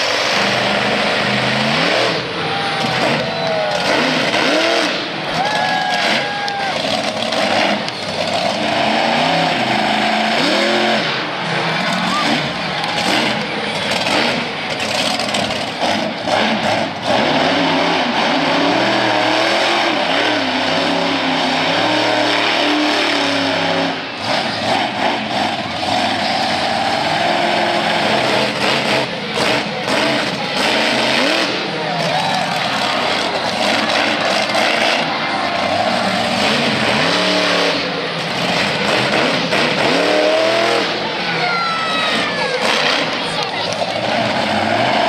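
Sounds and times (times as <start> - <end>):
monster truck engine revving: 0.0 - 45.0.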